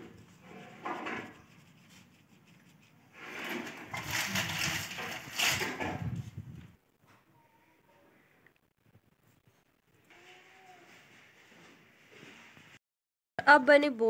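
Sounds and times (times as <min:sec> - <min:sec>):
baby walker rattling over concrete: 0:03.3 - 0:06.2.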